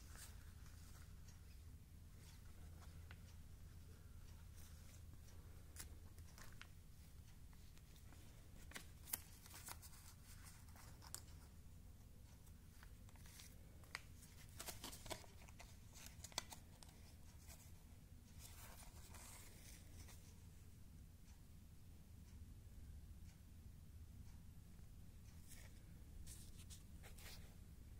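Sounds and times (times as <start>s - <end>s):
low steady hum: 0.0s - 27.9s
plastic sleeves crinkling: 12.8s - 17.6s.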